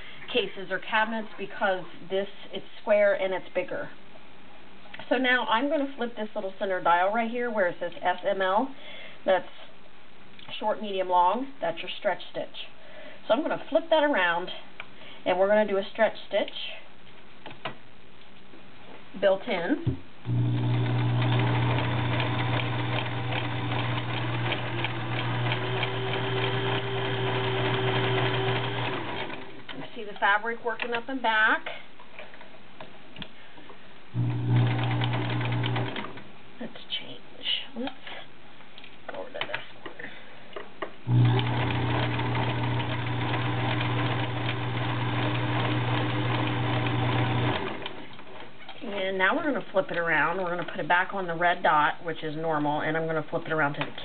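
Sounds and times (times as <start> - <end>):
sewing machine running: 20.3 - 29.6, 34.2 - 36.1, 41.1 - 48.0.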